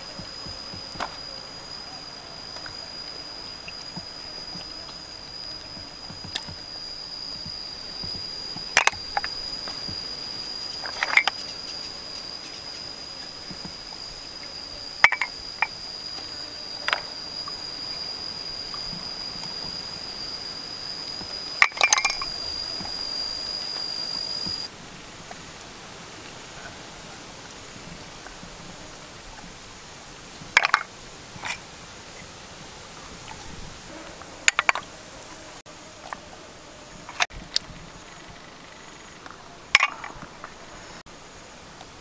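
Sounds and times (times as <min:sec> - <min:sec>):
steady high tone: 0:00.0 - 0:24.7.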